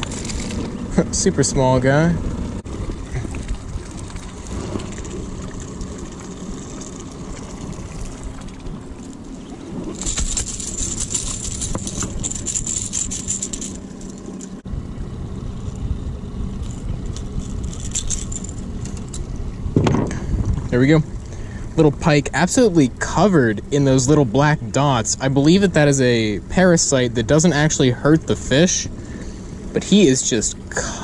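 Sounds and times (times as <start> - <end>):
outboard motor running: 0.0 - 31.0
metallic rattling and jangling: 10.0 - 14.6, 16.6 - 19.3.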